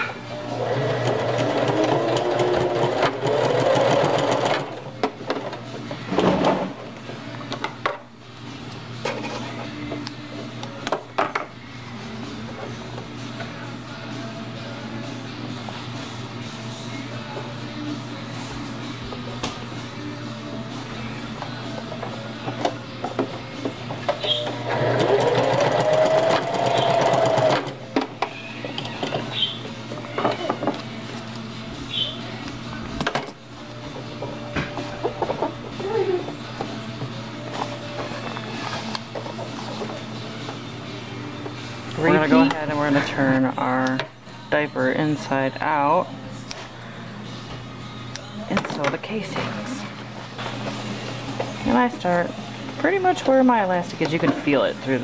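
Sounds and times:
sewing machine running: 0:00.5 - 0:04.8, 0:24.6 - 0:27.7
sewing machine motor whining: 0:24.6 - 0:27.7.

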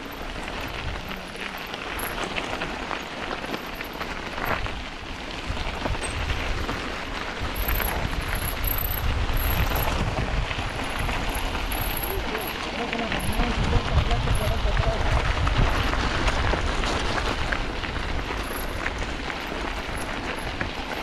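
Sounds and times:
bike rattling over stones: 0:00.0 - 0:21.0
wind rumble on microphone: 0:00.0 - 0:21.0
freewheel ticking: 0:07.5 - 0:16.0.

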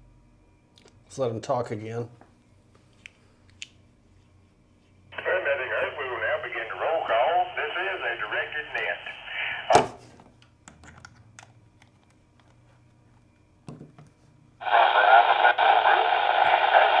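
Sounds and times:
band-limited radio audio: 0:05.1 - 0:10.0, 0:14.6 - 0:17.0
voice through radio speaker: 0:05.2 - 0:09.7, 0:14.6 - 0:17.0
radio speaker pop: 0:08.6 - 0:10.0.

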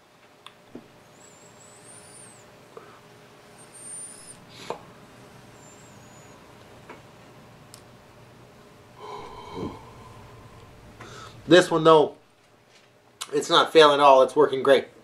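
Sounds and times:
hum: 0:00.4 - 0:12.6
person exhaling: 0:09.0 - 0:11.7.

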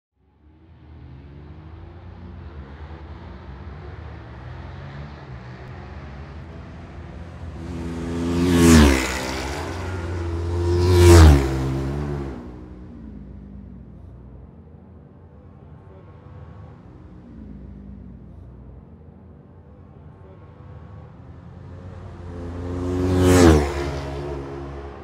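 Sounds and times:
racing motorcycles passing: 0:00.4 - 0:25.0.

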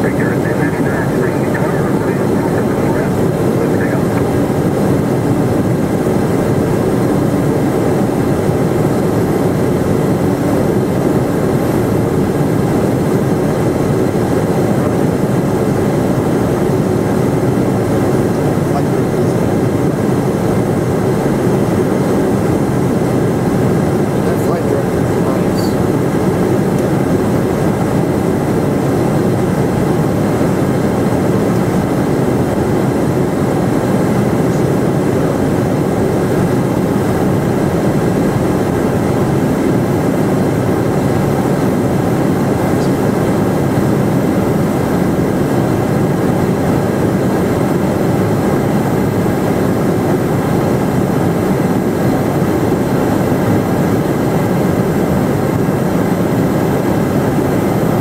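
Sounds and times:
faint high whine: 0:00.0 - 0:05.4
jet cockpit rumble: 0:00.0 - 0:58.0.

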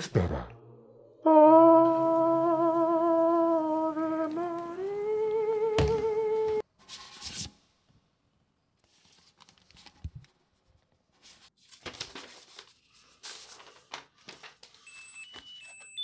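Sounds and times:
paper rustling and tearing: 0:11.2 - 0:14.8.

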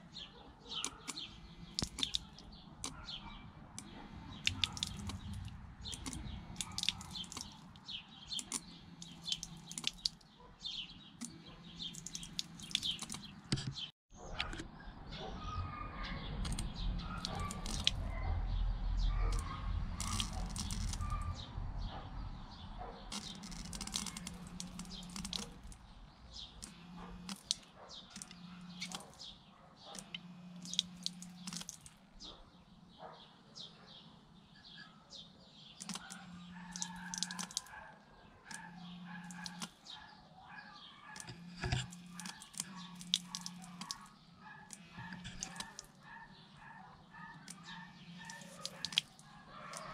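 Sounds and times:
birds chirping: 0:00.0 - 0:49.9
water pump humming: 0:26.6 - 0:27.6, 0:30.0 - 0:31.7, 0:41.2 - 0:44.1, 0:44.7 - 0:45.8.

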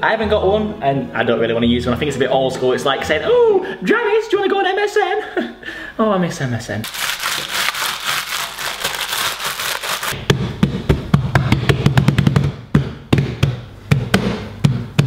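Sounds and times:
dough thumps and slaps: 0:10.1 - 0:15.0.

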